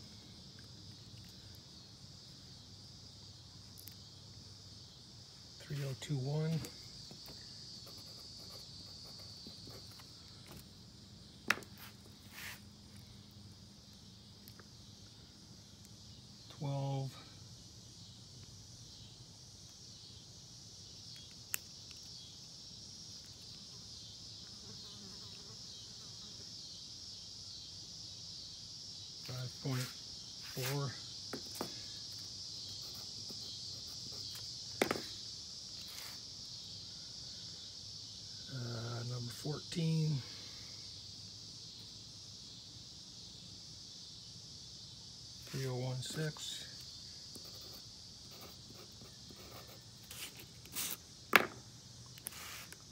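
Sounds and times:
crickets trilling: 0.0 - 52.9
steady high hiss: 0.0 - 52.9
pencil writing on paper: 7.8 - 10.0, 47.4 - 51.0.

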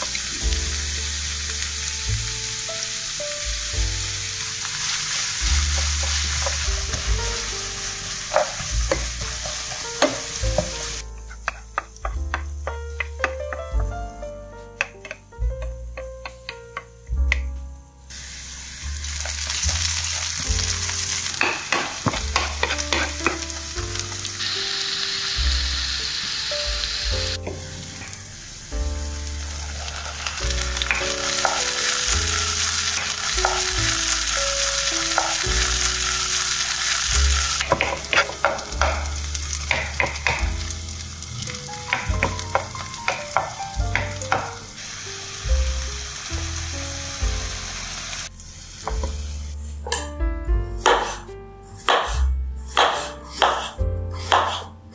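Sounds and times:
onions sizzling in oil: 0.0 - 14.2, 18.1 - 49.6
wooden spatula stirring: 5.0 - 13.6, 19.2 - 23.6, 29.6 - 34.4, 37.3 - 40.4, 41.4 - 44.6.

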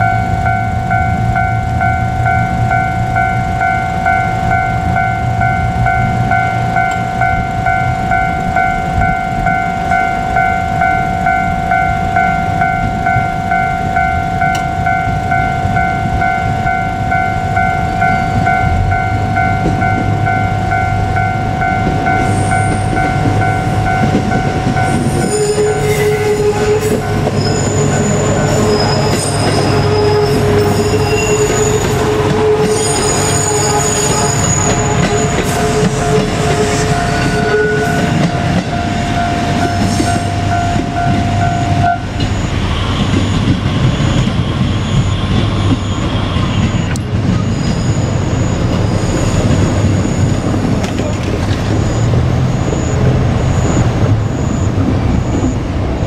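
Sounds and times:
diesel railcar passing: 0.0 - 56.0
level crossing warning bell: 0.0 - 56.0
train wheels squealing: 18.0 - 55.7.

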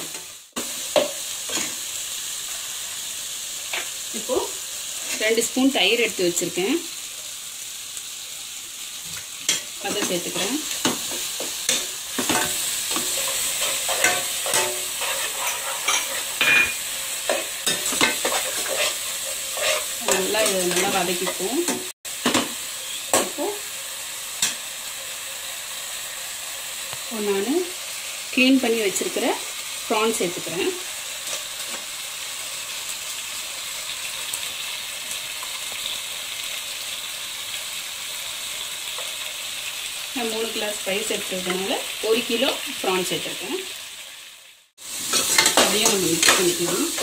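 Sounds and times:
food sizzling in oil: 0.0 - 47.0
spatula scraping a pot: 9.5 - 21.5.

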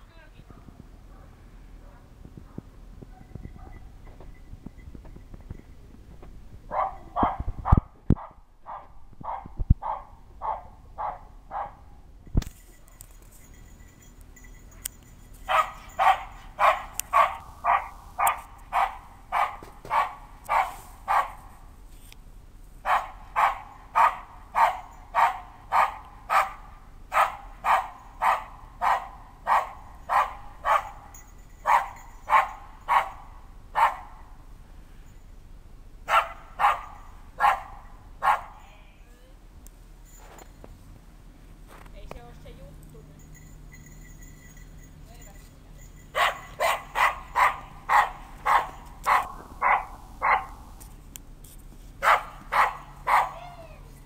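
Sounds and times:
dog barking: 0.5 - 4.0, 6.7 - 11.9, 15.5 - 21.5, 22.8 - 34.2, 36.1 - 38.6, 46.2 - 50.6, 52.0 - 53.4.

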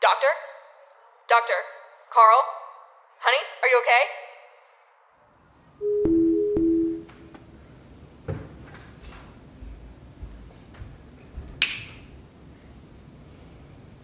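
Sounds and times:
two-note electronic chime: 5.8 - 7.3.

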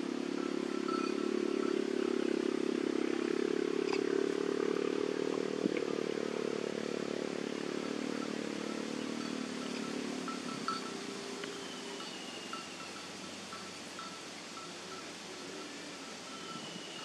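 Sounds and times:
motor engine running: 0.0 - 11.5.

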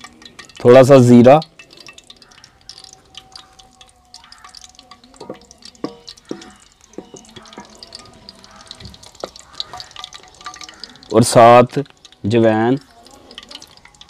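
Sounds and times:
seeds popping in hot oil: 0.0 - 14.0
wooden spatula knocking pan: 4.4 - 11.2.

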